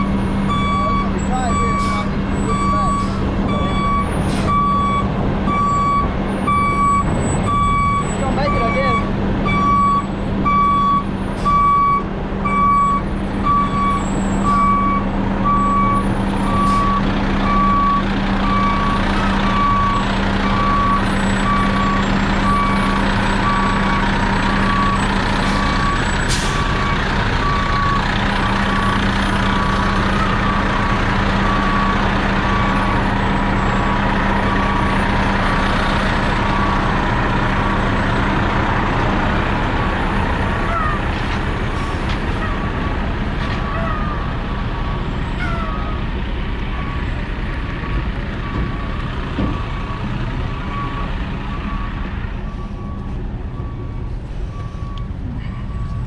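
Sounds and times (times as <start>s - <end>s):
truck backup alarm beeping: 0.0s - 38.2s, 41.7s - 56.0s
diesel engine running: 0.0s - 56.0s.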